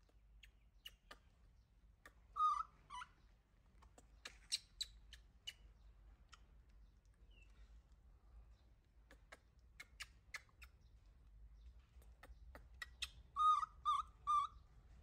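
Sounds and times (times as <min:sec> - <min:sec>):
baby monkey squeaking: 0:02.3 - 0:03.2, 0:12.8 - 0:14.6.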